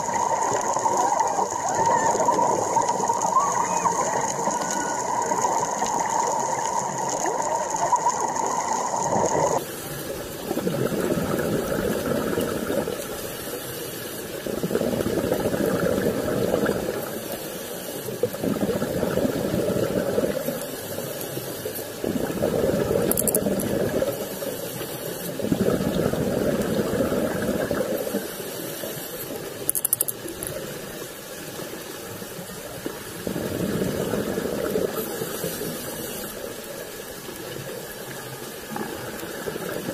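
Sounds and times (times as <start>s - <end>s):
diver exhaling bubbles: 0.0s - 9.6s, 10.4s - 13.1s, 14.4s - 17.2s, 18.2s - 20.6s, 22.0s - 24.4s, 25.4s - 28.3s, 33.1s - 35.9s
regulator hiss on inhale: 34.9s - 36.8s.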